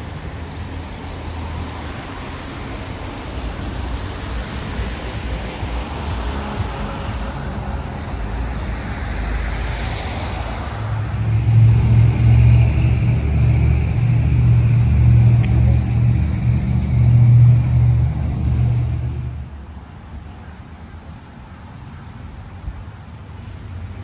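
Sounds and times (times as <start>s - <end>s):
vehicle going by: 0.0s - 19.8s
vehicle engine humming: 0.0s - 21.0s
street traffic noise: 0.0s - 24.0s.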